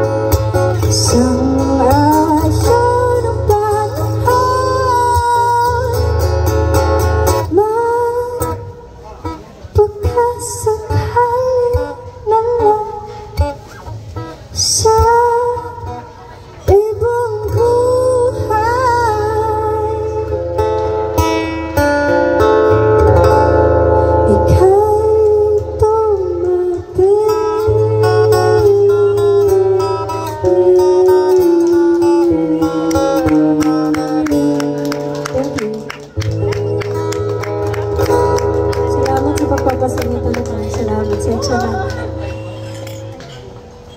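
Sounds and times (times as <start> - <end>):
strummed acoustic guitar: 0.0 - 43.9
woman singing: 0.7 - 6.2, 7.3 - 8.8, 9.7 - 13.5, 14.5 - 20.4, 24.3 - 36.0, 38.8 - 42.2.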